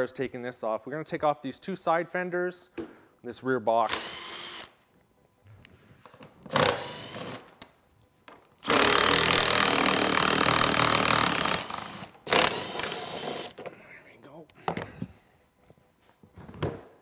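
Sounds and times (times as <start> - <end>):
power drill running: 3.9 - 4.7, 6.5 - 7.5, 8.6 - 13.6.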